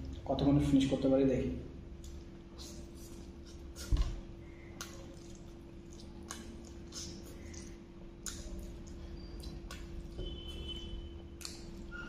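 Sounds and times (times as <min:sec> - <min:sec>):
person slurping and chewing noodles: 0:04.6 - 0:12.0.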